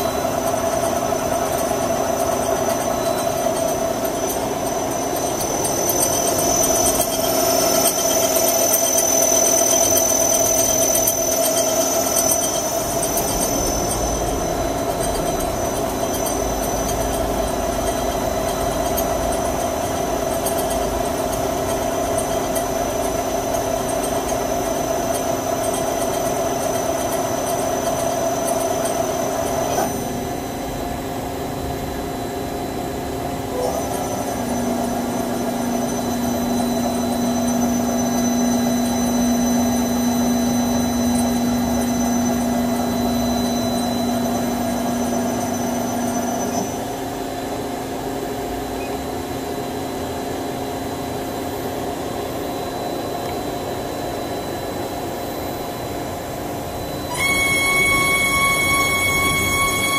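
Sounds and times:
lathe mechanical hum: 0:00.0 - 0:59.9
strong low whine: 0:03.0 - 0:21.4.

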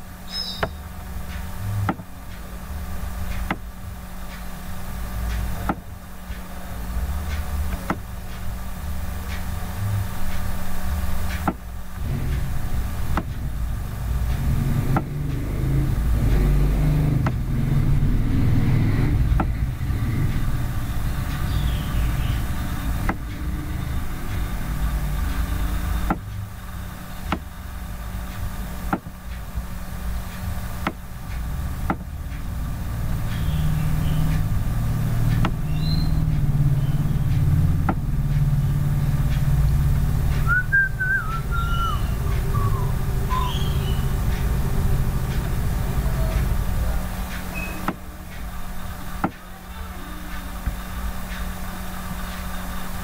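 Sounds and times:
road traffic rumble: 0:00.0 - 0:53.0
short high chirps: 0:40.5 - 0:44.1.

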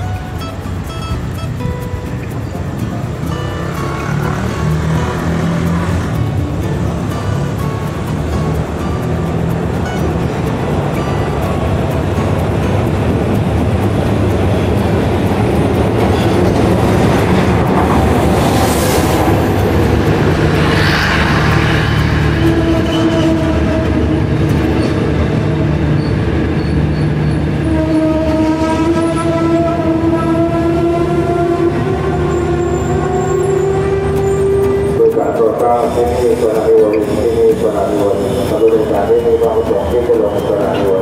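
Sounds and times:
train carriages rumbling past: 0:00.0 - 0:41.0
train brakes squealing: 0:20.6 - 0:41.0.

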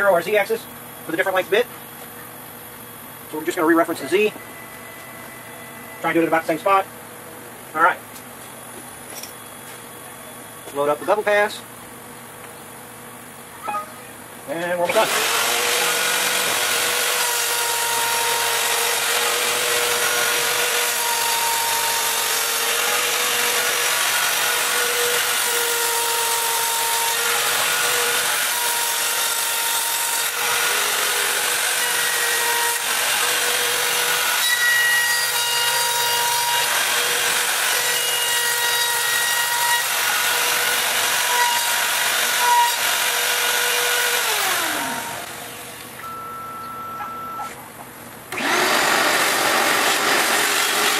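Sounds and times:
machine axes whining: 0:13.6 - 0:47.6, 0:48.3 - 0:50.9
router spindle whining: 0:14.9 - 0:45.9, 0:48.3 - 0:50.9
spindle winding down: 0:48.3 - 0:50.9.

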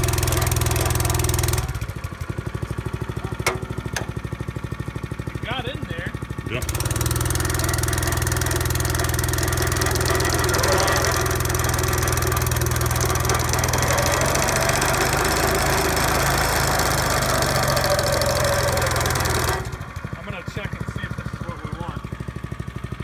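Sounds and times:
fast rattle of cutting drive: 0:00.0 - 0:05.5, 0:06.4 - 0:22.8
small gasoline engine running: 0:00.0 - 0:23.0.

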